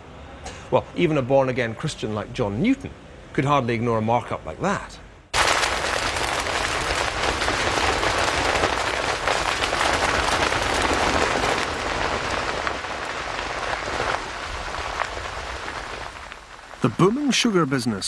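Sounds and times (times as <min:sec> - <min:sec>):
flames crackling through stalks: 0:05.3 - 0:18.0.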